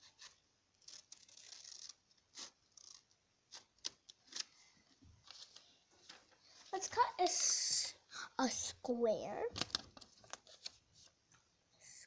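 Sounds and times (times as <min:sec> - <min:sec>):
paper rustling: 0:00.0 - 0:07.5, 0:09.5 - 0:11.5
light paper clicks: 0:09.5 - 0:11.5.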